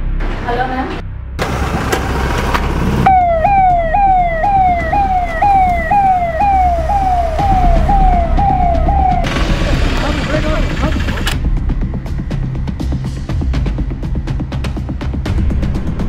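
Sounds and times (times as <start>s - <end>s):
low rumble: 2.8s - 13.1s
electronic police siren: 3.1s - 11.3s.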